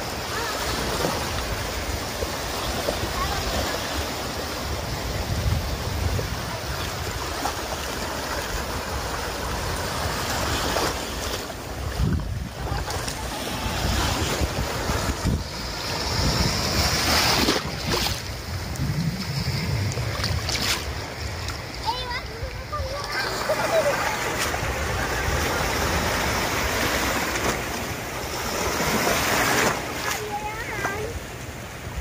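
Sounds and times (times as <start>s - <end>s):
small waves breaking in surf: 0.0s - 32.0s
wind buffeting microphone: 4.6s - 7.5s, 11.7s - 27.7s.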